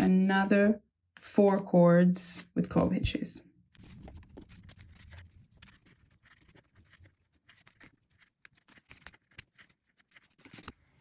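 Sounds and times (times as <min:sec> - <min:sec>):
cord rustling: 0:03.8 - 0:11.0.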